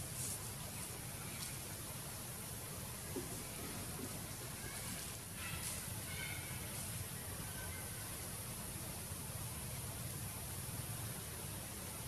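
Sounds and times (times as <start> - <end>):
background hiss: 0.0 - 12.0.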